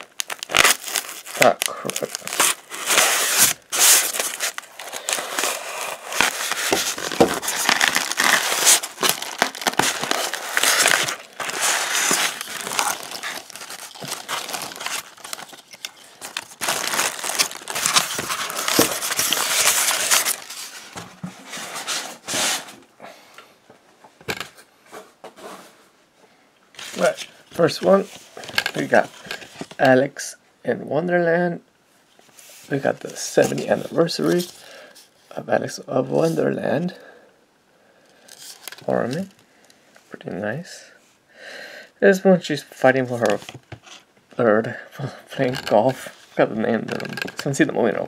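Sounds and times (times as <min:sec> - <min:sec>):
plastic wrap tearing: 0:00.0 - 0:20.9, 0:26.8 - 0:29.8, 0:45.4 - 0:47.6
plastic wrap crinkling: 0:00.0 - 0:21.0, 0:26.8 - 0:29.8, 0:38.2 - 0:39.4, 0:45.4 - 0:48.0.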